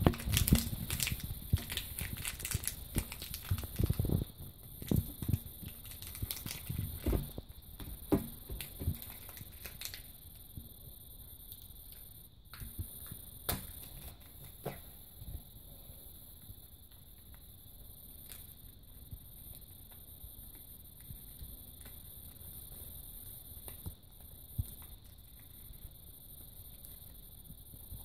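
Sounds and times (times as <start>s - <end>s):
plastic wrapper crinkling: 0.0s - 10.2s.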